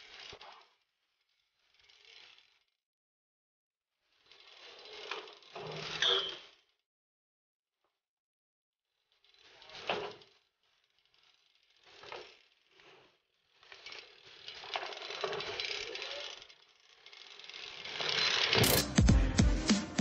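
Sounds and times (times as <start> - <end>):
bike rolling over concrete: 0.0 - 2.8, 4.0 - 6.8, 8.9 - 18.9
rattling drivetrain: 4.1 - 6.6, 9.2 - 19.0.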